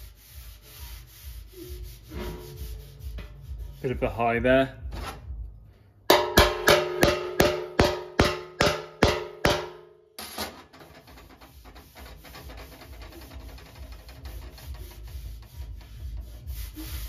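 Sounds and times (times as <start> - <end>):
hand rubbing metal panel: 0.0 - 3.9, 6.1 - 17.0
steel bar slapping metal panel: 6.1 - 14.8.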